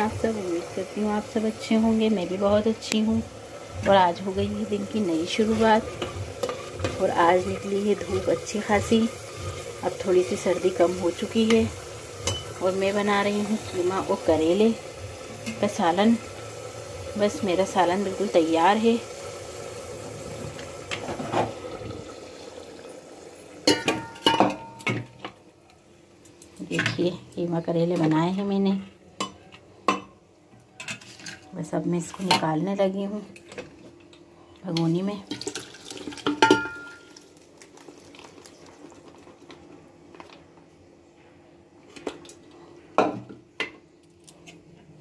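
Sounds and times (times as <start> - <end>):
low background hum: 0.0 - 45.0.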